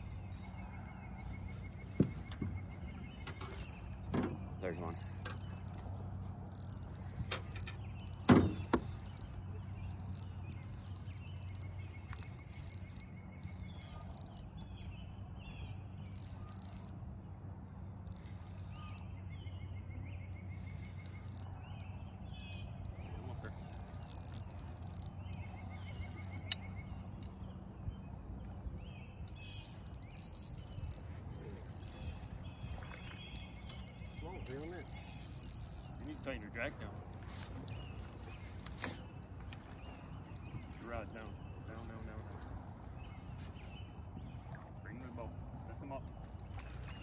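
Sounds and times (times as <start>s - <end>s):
steady low hum: 0.0s - 47.0s
frogs trilling: 4.8s - 14.7s, 16.0s - 17.0s, 18.0s - 19.1s, 20.4s - 26.7s, 29.3s - 36.6s, 38.4s - 41.4s, 42.2s - 42.8s.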